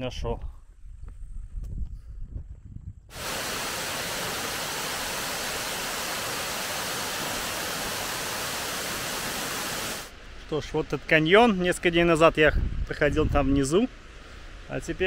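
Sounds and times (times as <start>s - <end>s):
rushing river water: 3.1s - 10.1s.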